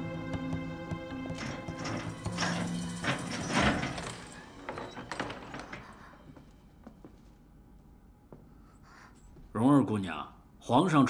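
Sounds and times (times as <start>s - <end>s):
background music: 0.0s - 8.3s
wooden door knocks and clanks: 0.2s - 6.0s.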